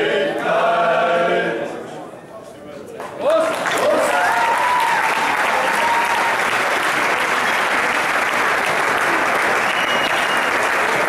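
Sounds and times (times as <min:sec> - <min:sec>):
crowd applauding: 0:03.2 - 0:11.0
crowd cheering: 0:03.3 - 0:11.0.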